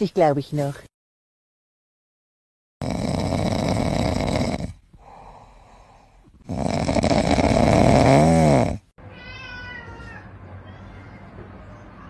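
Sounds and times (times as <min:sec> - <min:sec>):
loud rough snoring: 0:02.8 - 0:08.9
quiet breath: 0:04.9 - 0:06.4.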